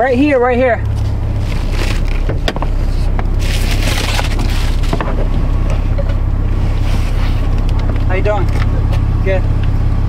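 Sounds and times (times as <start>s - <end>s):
car engine idling: 0.0s - 10.0s
rustling noise: 0.9s - 8.0s.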